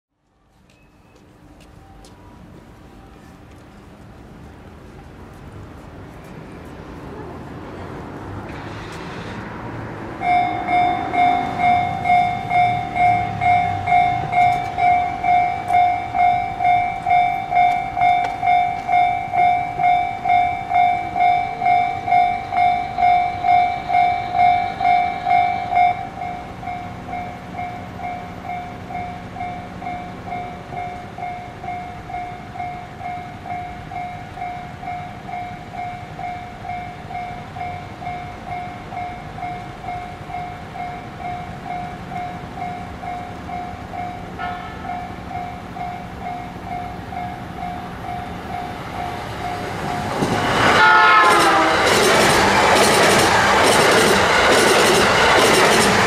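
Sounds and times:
level crossing warning bell: 0:00.7 - 0:03.9, 0:10.1 - 0:56.0.

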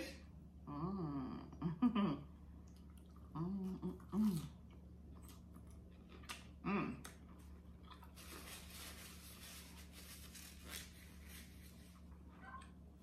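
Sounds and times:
person humming: 0:06.6 - 0:07.1.

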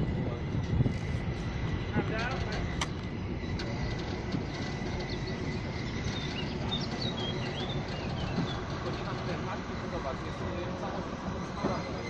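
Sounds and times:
steady low rumble: 0:00.0 - 0:11.4
small birds chirping: 0:04.9 - 0:09.2.

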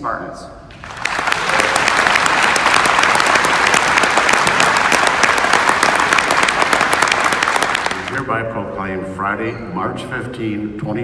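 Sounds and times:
audience applauding: 0:00.7 - 0:08.3.

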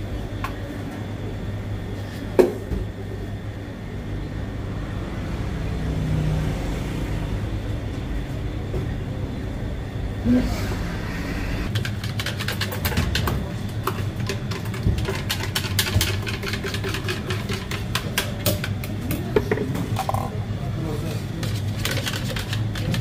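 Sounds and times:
steady low hum: 0:00.0 - 0:23.0
utensils and plastic cups clicking: 0:11.7 - 0:20.3, 0:21.4 - 0:23.0.

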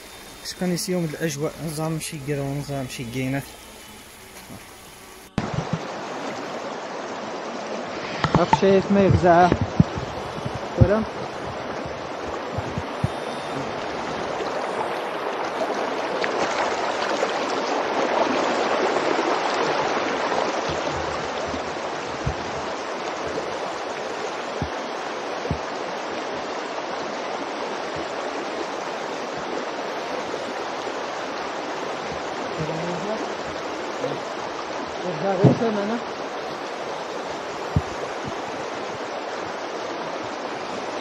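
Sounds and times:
floodwater rushing over gravel: 0:00.0 - 0:41.0
faint low bumps: 0:08.0 - 0:14.8, 0:20.5 - 0:26.4.

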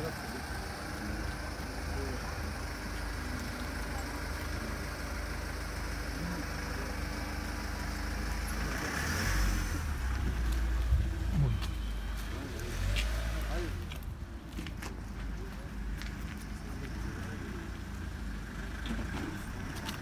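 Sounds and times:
street traffic rumble: 0:00.0 - 0:20.0
vehicle passing: 0:07.3 - 0:13.9.

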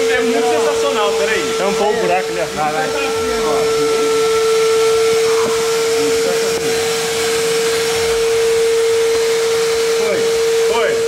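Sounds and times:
voices: 0:00.0 - 0:07.6
vacuum cleaner running: 0:00.0 - 0:11.0.

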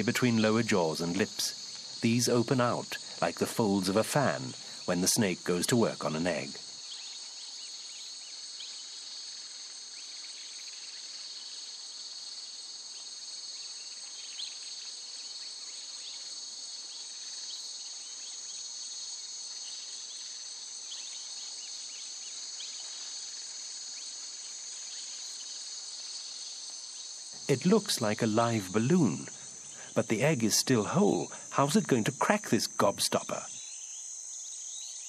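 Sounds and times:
insects trilling: 0:00.0 - 0:35.0
faint ticks and rustles: 0:03.9 - 0:27.5.

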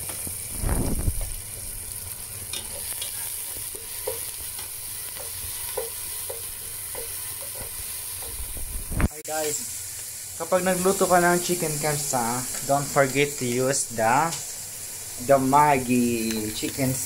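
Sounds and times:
vegetables sizzling in a frying pan: 0:00.0 - 0:17.0
spatula scraping a pan: 0:01.5 - 0:08.6.

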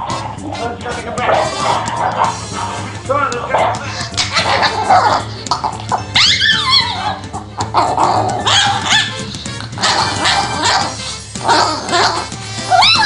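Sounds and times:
background music: 0:00.0 - 0:13.0
small dog growling and yipping: 0:04.2 - 0:13.0.

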